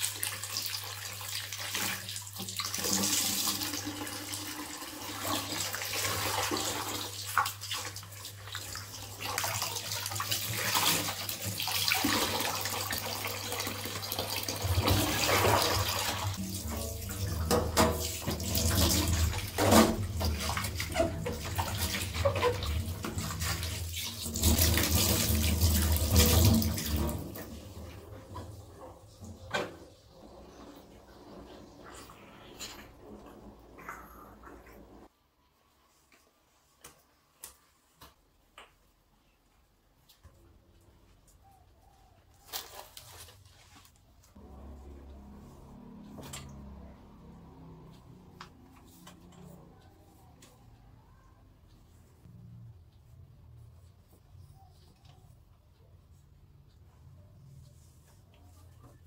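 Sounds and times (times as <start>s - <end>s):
water splashing in basin: 5.0s - 28.0s
tap running into basin: 10.2s - 28.6s.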